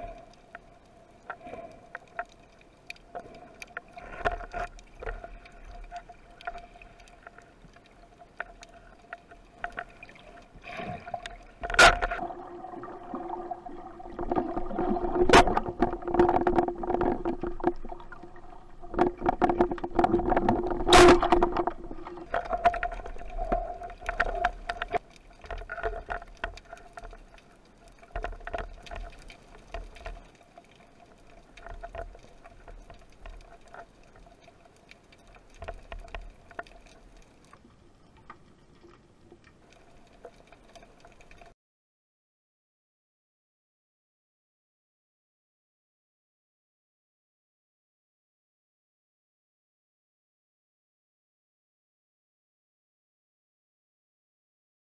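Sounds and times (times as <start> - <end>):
fine crackle underwater: 0.0 - 41.6
underwater water movement: 0.0 - 41.6.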